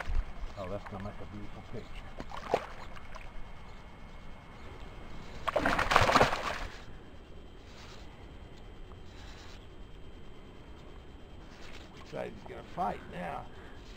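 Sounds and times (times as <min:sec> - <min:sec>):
fish splashing in water: 0:05.4 - 0:06.8.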